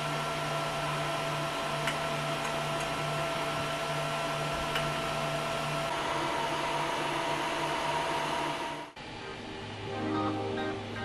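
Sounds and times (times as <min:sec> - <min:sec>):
cooling fans whirring: 0:00.0 - 0:11.0.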